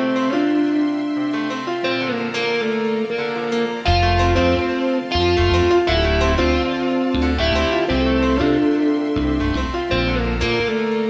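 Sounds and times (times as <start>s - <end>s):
melody of held notes: 0.0s - 11.0s
low bass line: 3.9s - 10.7s.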